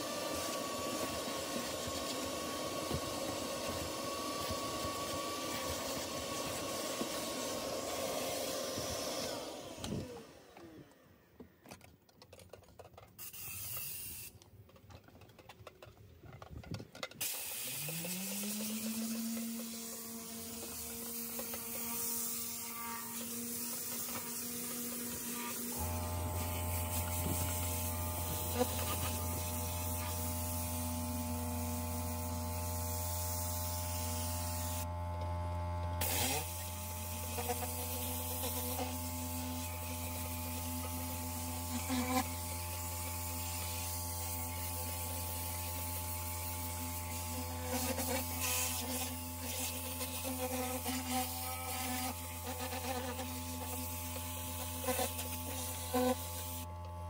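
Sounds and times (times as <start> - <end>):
extractor machine motor running: 0.0 - 11.1, 23.8 - 38.0
motor whine: 0.0 - 11.3, 17.7 - 43.2.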